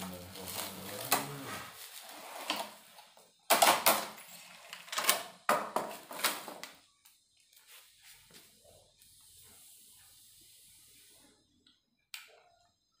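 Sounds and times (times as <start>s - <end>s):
plastic packaging crinkling: 0.0s - 2.7s.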